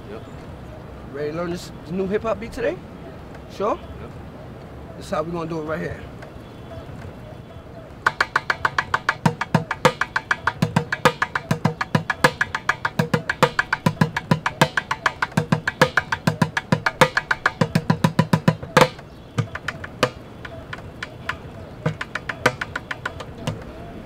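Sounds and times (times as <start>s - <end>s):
low hits on bucket drum: 8.1s - 23.6s
drumsticks clicking: 8.1s - 23.7s.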